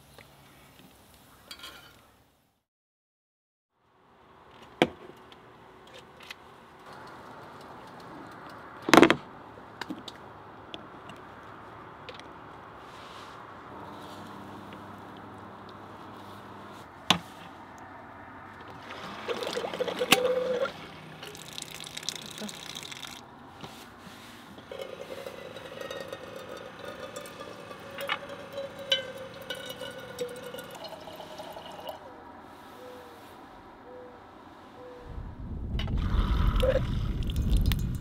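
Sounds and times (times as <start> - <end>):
pump faucet running: 18.8 - 23.2, 26.8 - 32.0
water pouring from faucet: 18.8 - 23.2, 24.7 - 32.0, 36.0 - 38.0.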